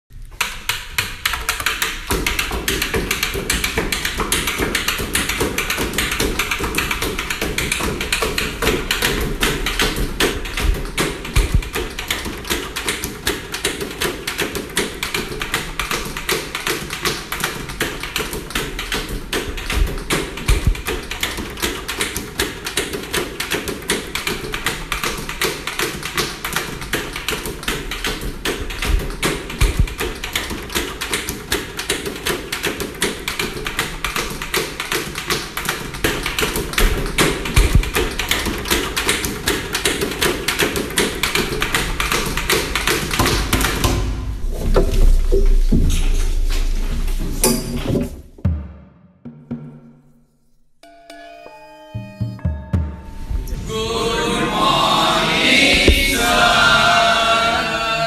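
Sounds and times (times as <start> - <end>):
fingers drumming on wooden desk: 0.4 - 44.2
heavier low thuds: 10.4 - 12.0, 19.7 - 21.1, 28.8 - 30.0, 37.6 - 38.2.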